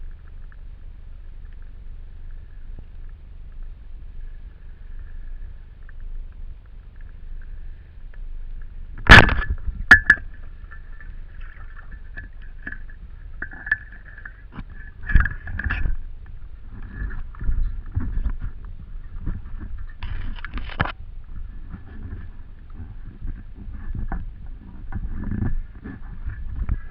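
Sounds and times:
low water rumble: 0:00.0 - 0:26.9
speargun firing underwater: 0:09.0 - 0:15.8.

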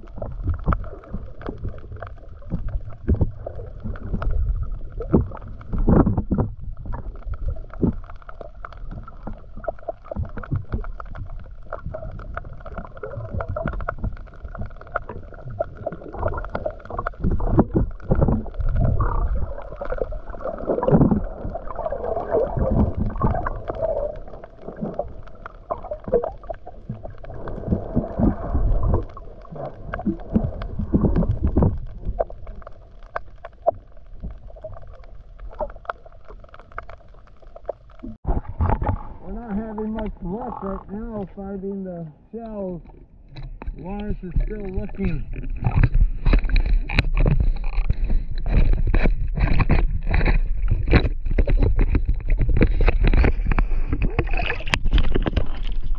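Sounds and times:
muffled underwater water sloshing: 0:00.0 - 0:55.9.

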